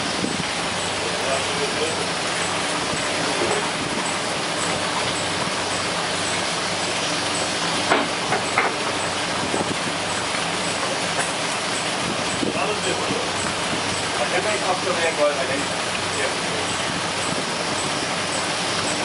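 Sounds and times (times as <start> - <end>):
boat machinery drone: 0.0 - 19.0
constant hiss: 10.6 - 16.7.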